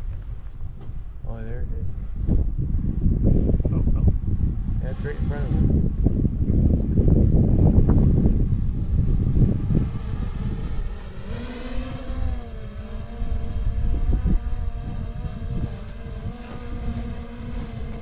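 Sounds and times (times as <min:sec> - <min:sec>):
wind buffeting microphone: 0:00.0 - 0:18.0
motor humming: 0:04.9 - 0:18.0.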